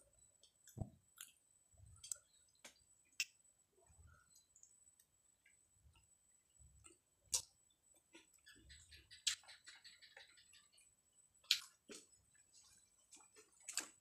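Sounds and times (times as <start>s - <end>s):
small crackling ticks: 2.0s - 3.4s, 4.2s - 6.1s.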